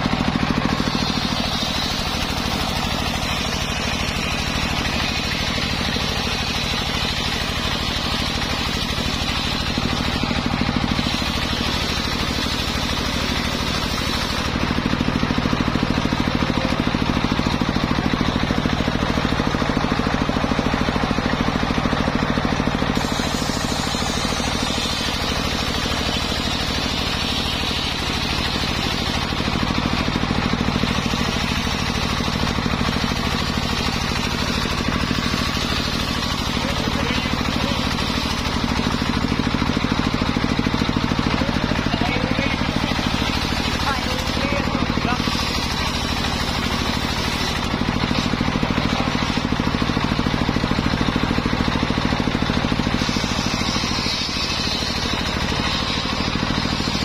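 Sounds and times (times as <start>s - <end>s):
saw blade cutting hiss: 0.0s - 14.7s, 22.8s - 30.2s, 30.8s - 39.4s, 42.7s - 48.3s, 52.8s - 57.0s
engine drone: 0.0s - 57.0s.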